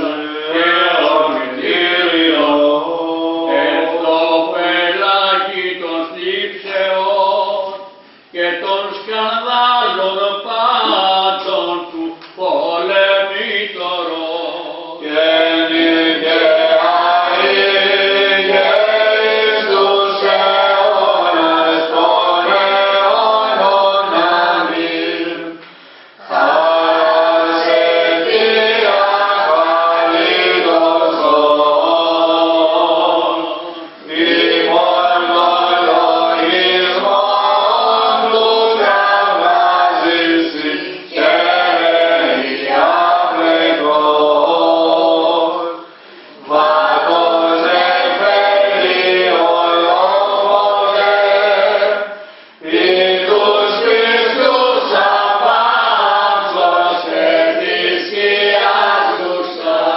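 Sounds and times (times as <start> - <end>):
voices chanting: 12.5 - 25.6, 26.2 - 45.8, 46.4 - 59.9.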